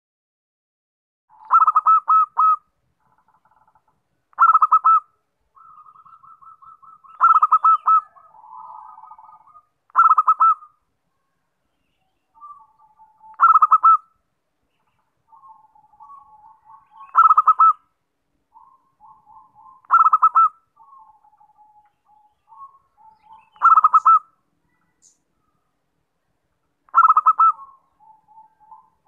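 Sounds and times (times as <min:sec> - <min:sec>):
dove staccato cooing: 0:01.3 - 0:02.6, 0:03.2 - 0:10.7, 0:12.4 - 0:14.0, 0:15.3 - 0:17.8, 0:18.5 - 0:24.2, 0:26.9 - 0:29.0
soft rolling dove coos: 0:01.3 - 0:10.8, 0:12.3 - 0:14.1, 0:14.8 - 0:17.9, 0:18.5 - 0:24.8, 0:26.9 - 0:29.0.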